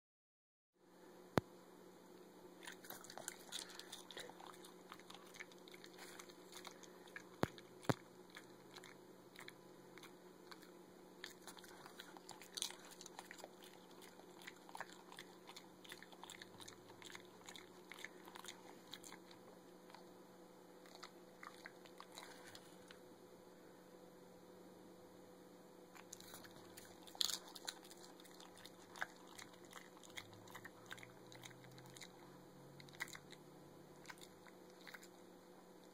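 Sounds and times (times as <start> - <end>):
dog crunching popcorn: 2.6 - 20.1, 20.8 - 23.0, 25.9 - 32.2, 32.8 - 33.4, 34.0 - 35.9.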